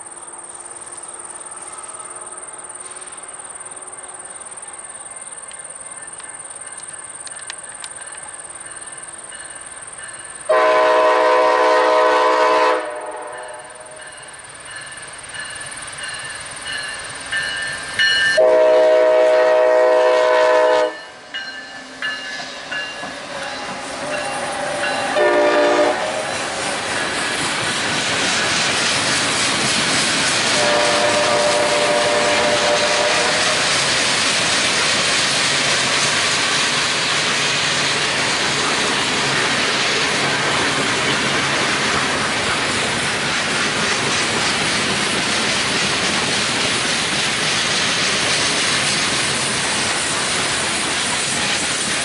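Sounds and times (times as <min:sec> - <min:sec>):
train engine and wheel noise: 0:00.0 - 0:52.0
locomotive horn blasts: 0:10.5 - 0:14.0, 0:18.4 - 0:21.2, 0:25.1 - 0:26.2, 0:30.6 - 0:33.6.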